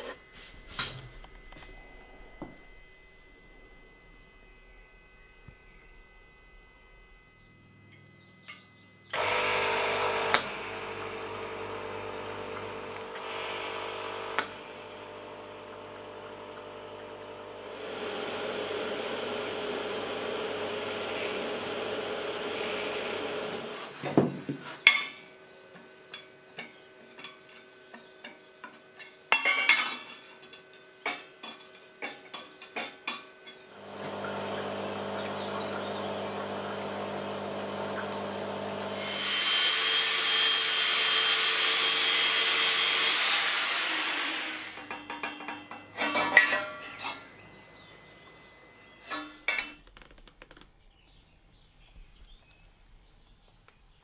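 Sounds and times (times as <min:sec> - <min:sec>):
welding arc buzz and hiss: 0:09.1 - 0:24.6, 0:33.7 - 0:45.1.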